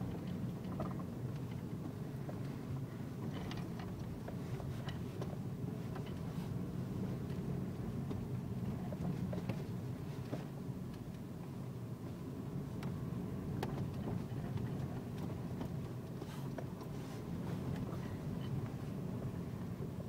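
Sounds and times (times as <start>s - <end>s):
car engine and tyres rumbling: 0.0s - 20.0s
faint clicks and knocks: 3.2s - 6.3s, 12.8s - 17.0s.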